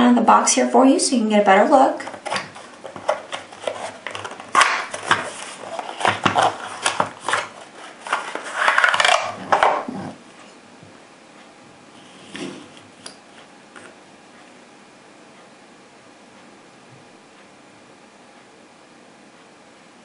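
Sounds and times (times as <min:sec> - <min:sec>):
cardboard box rustling and clicks: 0:02.2 - 0:09.9.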